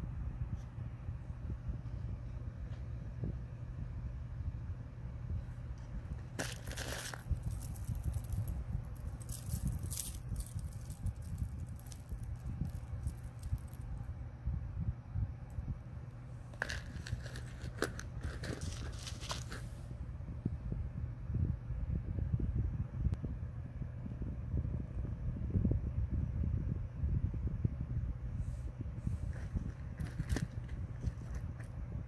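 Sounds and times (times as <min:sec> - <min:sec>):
steady low hum: 0:00.0 - 0:32.0
handling rumble: 0:05.1 - 0:20.2, 0:28.7 - 0:32.0
metal jewelry clinking: 0:06.4 - 0:13.8, 0:16.5 - 0:19.6, 0:29.3 - 0:31.7.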